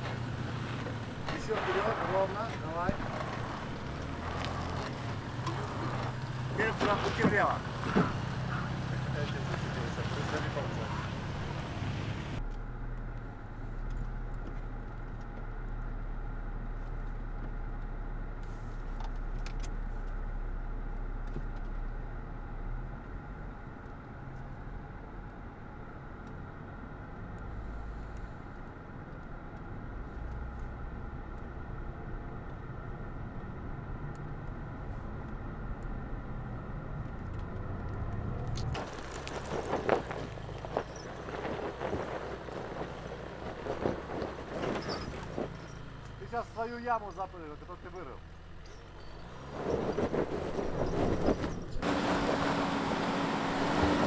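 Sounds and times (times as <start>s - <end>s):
muffled car engine rumble: 0.0s - 54.0s
rough outdoor noise: 0.0s - 54.0s.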